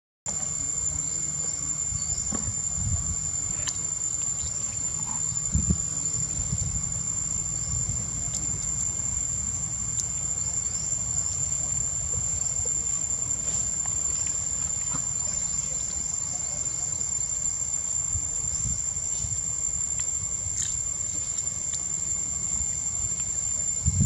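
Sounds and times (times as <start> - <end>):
insects high-pitched drone: 0.3 - 24.0
brief thump: 2.2 - 2.6
low rumble: 5.0 - 10.0.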